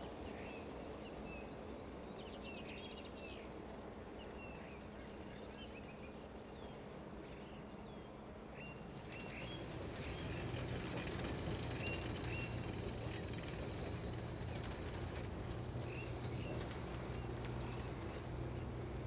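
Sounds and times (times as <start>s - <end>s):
electric locomotive hum: 6.2s - 19.0s
birds chirping: 8.8s - 19.0s
wheels clicking and rattling: 8.9s - 19.0s.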